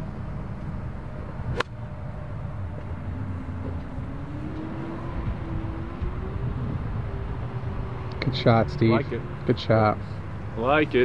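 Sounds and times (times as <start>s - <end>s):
faint rising hum: 0.0s - 11.0s
low outdoor rumble: 0.0s - 11.0s
golf club striking ball: 1.5s - 1.8s.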